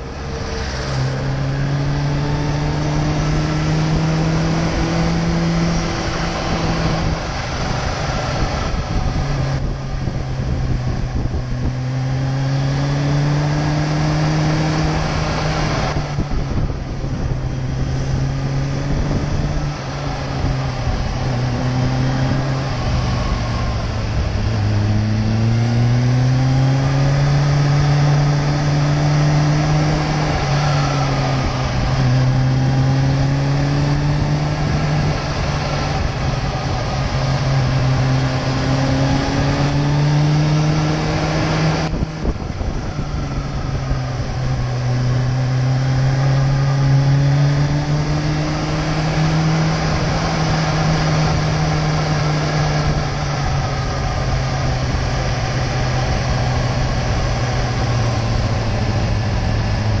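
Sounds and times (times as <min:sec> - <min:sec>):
motorcycle engine running: 0:00.0 - 1:00.0
wind and road noise: 0:00.0 - 1:00.0.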